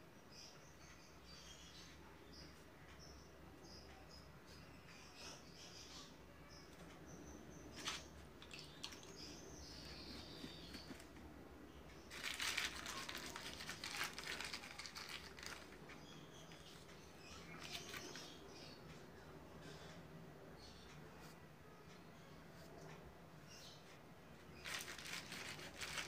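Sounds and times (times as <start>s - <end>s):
rustling and crinkling: 7.7s - 11.3s, 12.1s - 16.9s, 17.5s - 18.3s, 24.6s - 26.0s.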